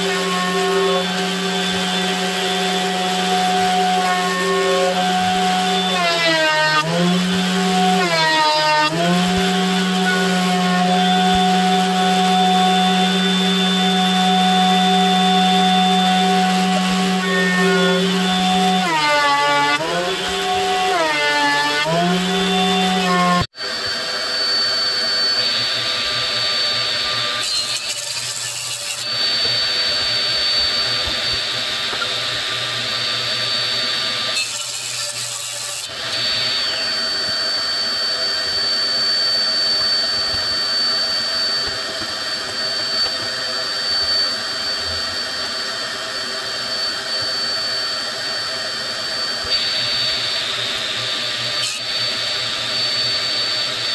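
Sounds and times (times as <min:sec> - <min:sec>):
saw blade cutting wood: 0:00.0 - 0:23.5, 0:26.9 - 0:32.3, 0:34.1 - 0:37.6, 0:51.3 - 0:52.3
thickness planer running: 0:00.0 - 0:47.5
table saw whining: 0:00.0 - 0:53.9.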